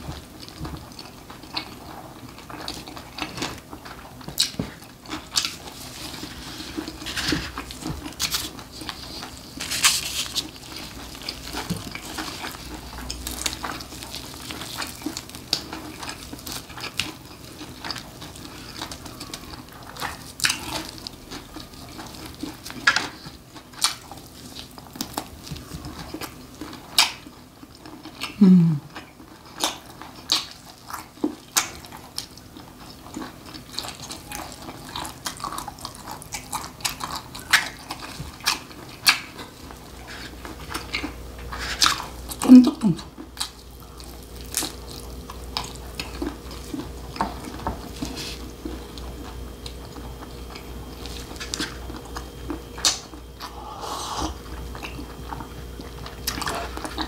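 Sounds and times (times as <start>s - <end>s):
wet chewing smacks: 0.2s - 57.0s
meat tearing: 4.3s - 27.3s, 33.1s - 42.4s, 43.3s - 55.4s.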